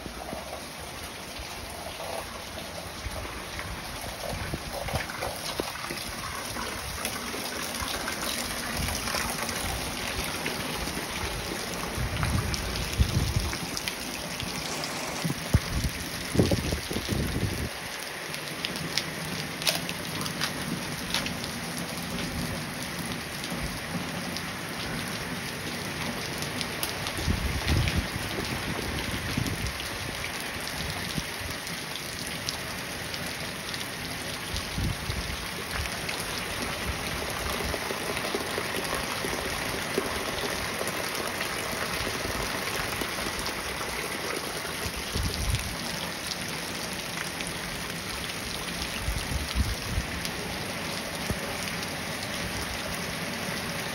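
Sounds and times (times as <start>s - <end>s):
rain pattering on water: 0.0s - 53.9s.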